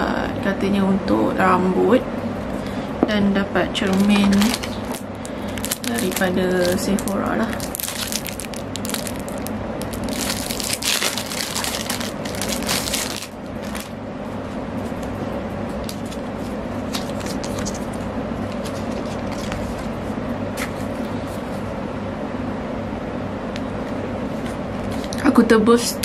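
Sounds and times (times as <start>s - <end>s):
steady low hum: 0.0s - 26.0s
cellophane wrap crinkling: 3.8s - 14.0s, 15.8s - 19.9s.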